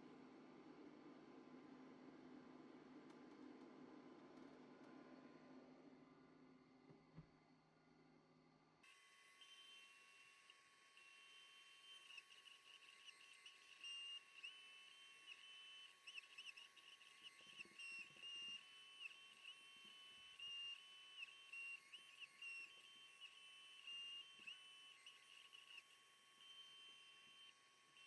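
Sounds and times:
high whine of laser cutter motors: 8.8s - 28.0s.

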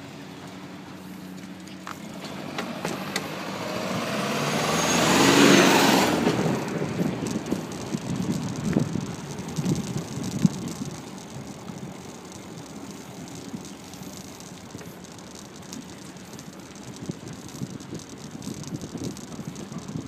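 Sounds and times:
road rumble: 0.0s - 20.0s
wind hiss: 2.0s - 20.0s
bicycle rattling knocks: 6.2s - 20.0s.

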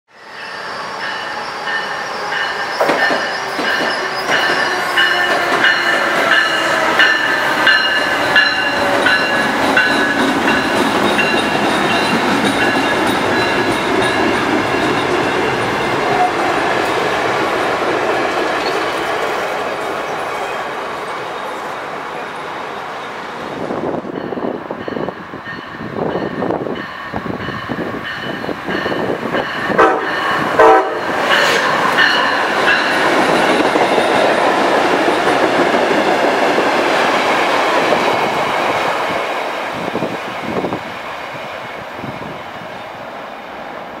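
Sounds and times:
train wheels rattling on rail: 0.5s - 21.6s, 23.5s - 43.7s
train horn blasts: 29.7s - 31.8s.

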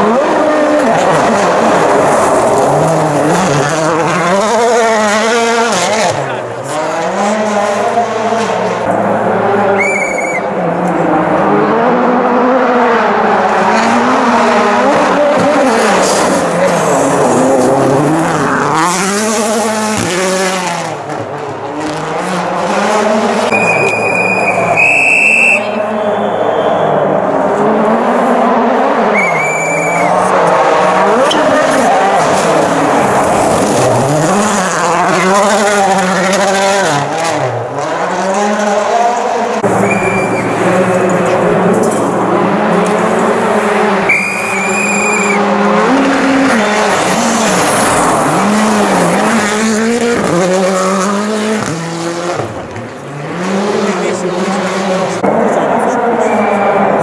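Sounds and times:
rally car engine approaching: 0.0s - 57.0s
high whistle-like tone: 9.8s - 10.5s, 23.5s - 27.0s, 29.1s - 30.2s, 39.8s - 40.6s, 44.1s - 45.4s, 56.2s - 56.7s.

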